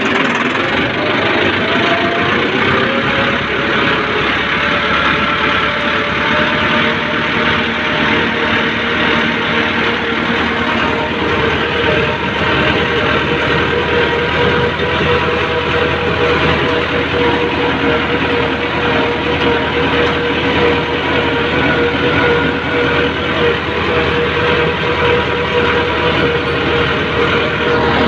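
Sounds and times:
tractor diesel engine droning: 0:00.0 - 0:28.0.

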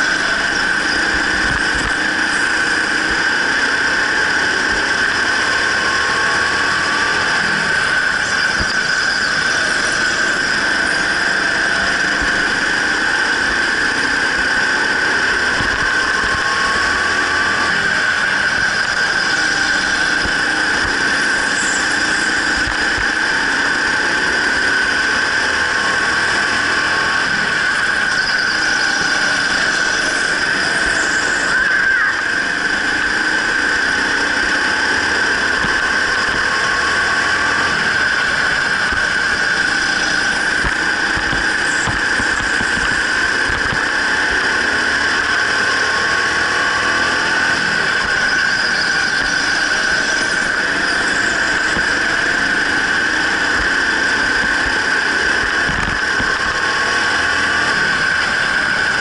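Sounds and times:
go-kart engine whine: 0:00.0 - 0:59.0.

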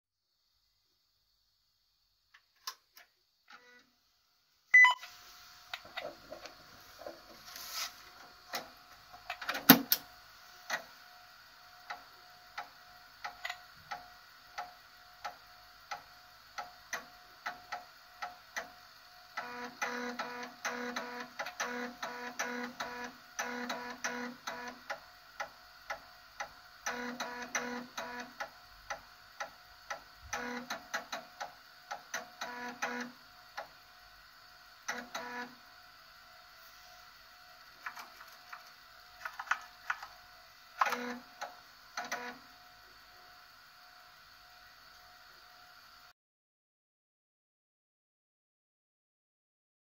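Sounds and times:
floppy drive buzzing bursts: 0:11.8 - 0:33.8, 0:34.8 - 0:35.6, 0:39.2 - 0:42.5.

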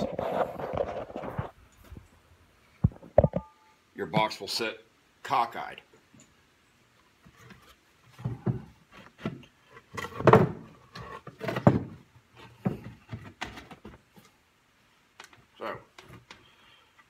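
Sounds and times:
wooden boards knocking and scraping: 0:07.2 - 0:14.2.

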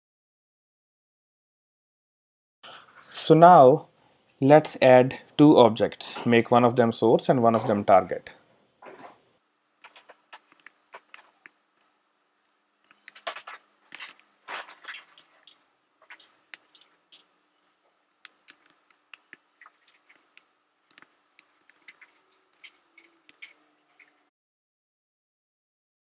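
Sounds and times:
keyboard typing clicks: 0:18.2 - 0:24.1.

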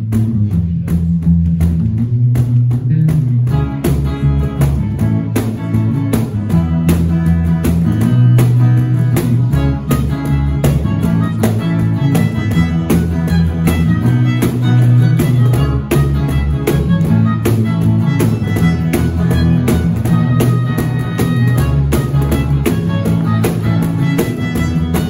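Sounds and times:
bass guitar: 0:00.0 - 0:25.0
cajon beat: 0:00.0 - 0:25.0
electric guitar: 0:00.0 - 0:25.0
keyboard: 0:03.5 - 0:25.0
violin melody: 0:08.3 - 0:25.0.

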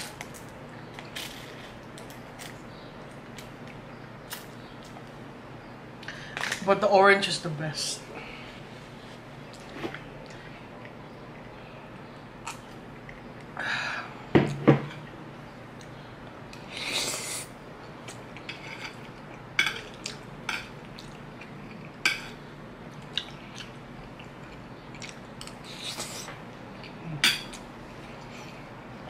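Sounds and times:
chewing: 0:22.9 - 0:28.6.

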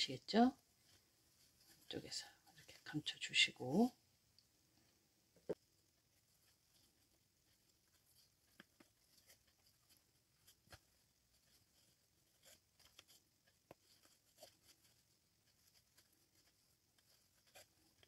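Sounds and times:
yarn rustling and clicking: 0:05.6 - 0:18.0.

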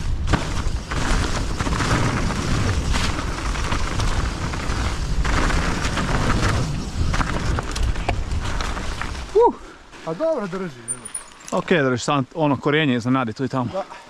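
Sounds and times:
bike knocking and rattling: 0:00.0 - 0:09.3
wind rumble on microphone: 0:00.0 - 0:09.4.

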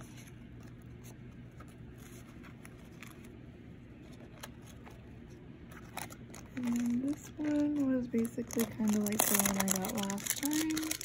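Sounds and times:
low steady hum: 0:00.0 - 0:11.0
paper rustling and tapping: 0:06.0 - 0:11.0.

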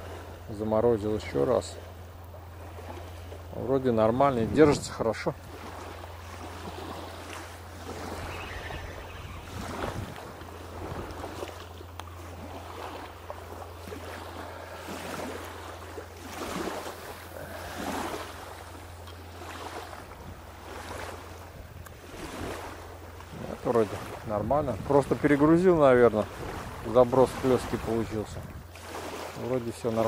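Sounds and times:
water lapping at riverbank: 0:00.0 - 0:30.0
wind on microphone: 0:04.2 - 0:05.7, 0:06.6 - 0:11.5, 0:23.3 - 0:28.7.

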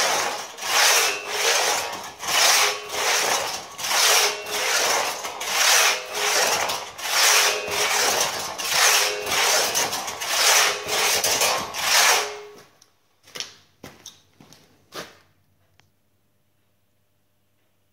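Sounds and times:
hand saw rasping through log: 0:00.0 - 0:12.5.

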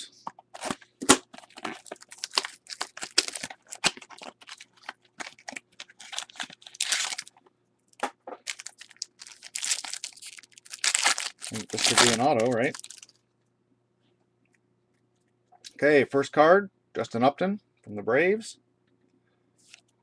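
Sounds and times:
foil wrapper tearing and crinkling: 0:00.6 - 0:07.4, 0:08.4 - 0:13.2.

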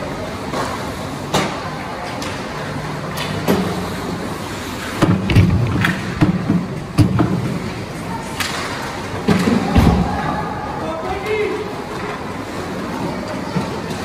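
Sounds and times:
arena noise: 0:00.0 - 0:14.0
hockey sticks and puck clacking: 0:08.2 - 0:10.0.

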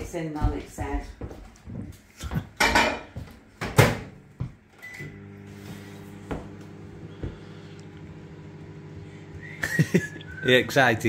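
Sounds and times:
microwave running hum: 0:03.8 - 0:11.0.

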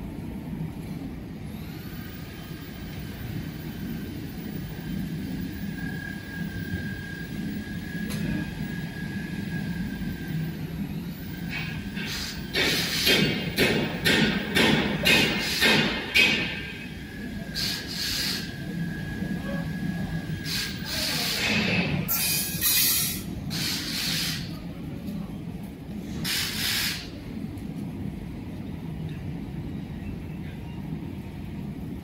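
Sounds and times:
loud hissing bursts: 0:12.0 - 0:13.4, 0:17.5 - 0:18.6, 0:20.4 - 0:24.5, 0:26.2 - 0:27.1.

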